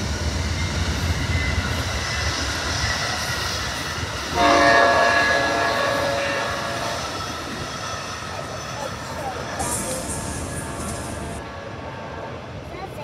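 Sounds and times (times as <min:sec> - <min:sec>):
train wheels rumbling on rails: 0:00.0 - 0:13.0
train horn chord: 0:04.3 - 0:07.0.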